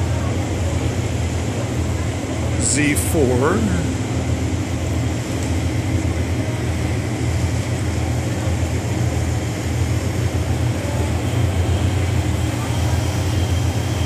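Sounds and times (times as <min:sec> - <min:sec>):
ferry engines droning: 0:00.0 - 0:14.0
even rushing noise: 0:01.2 - 0:09.1.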